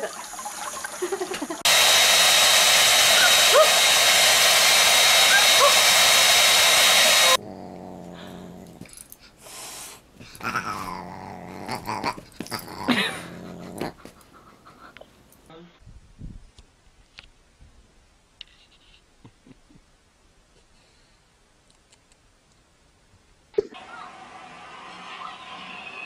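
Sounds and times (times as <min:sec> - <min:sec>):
dog growling and whining: 0:07.2 - 0:09.2, 0:10.2 - 0:14.2.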